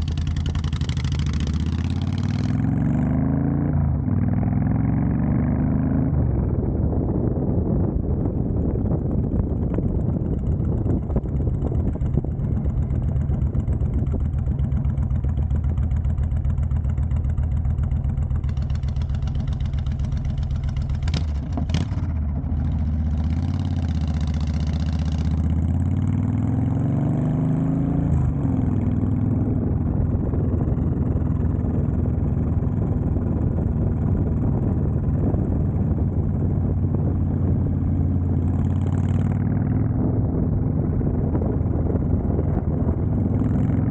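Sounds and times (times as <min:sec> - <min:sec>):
motorcycle engine exhaust note: 0:00.0 - 0:43.9.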